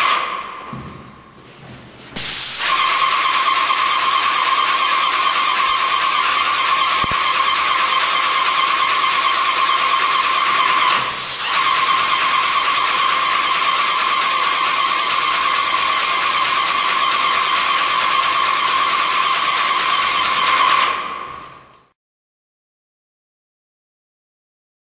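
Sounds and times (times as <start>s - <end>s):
paint spray gun hissing: 2.2s - 20.9s.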